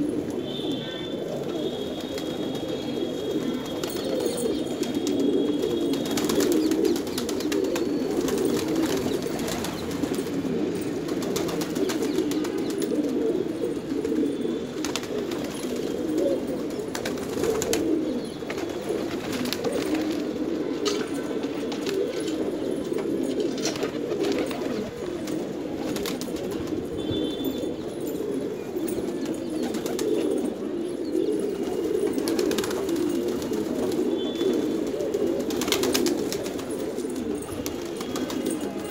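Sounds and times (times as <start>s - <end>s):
pigeons cooing: 0.0s - 38.9s.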